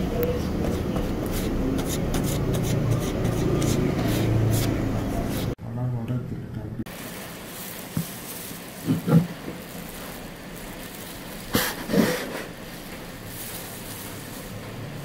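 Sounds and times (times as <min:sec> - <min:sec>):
steady background hiss: 0:06.9 - 0:15.0.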